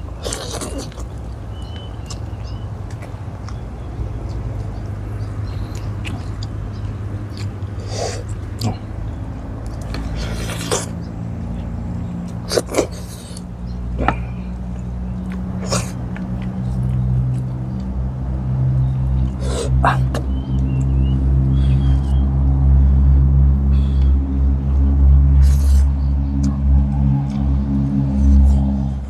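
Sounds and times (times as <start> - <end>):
man eating with smacking lips: 0.0 - 21.0.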